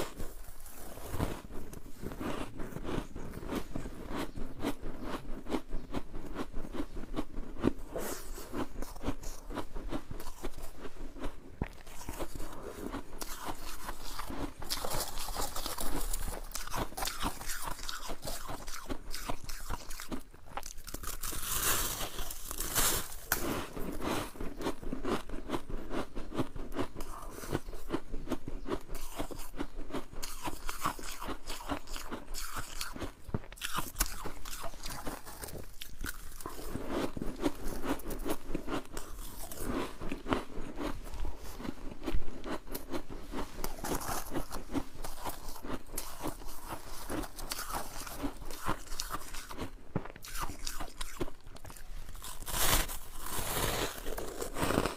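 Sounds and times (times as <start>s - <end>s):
crisp crunching of frost: 20.7s - 24.3s, 50.3s - 54.9s.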